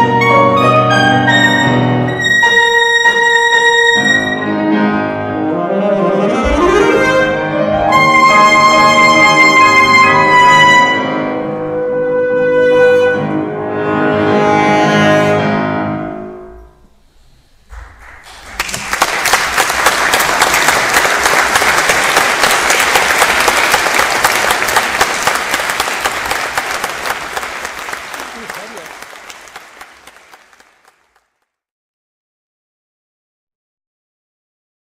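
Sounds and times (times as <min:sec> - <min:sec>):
saxophone and piano classical piece: 0:00.0 - 0:16.9
audience applauding: 0:17.7 - 0:31.4.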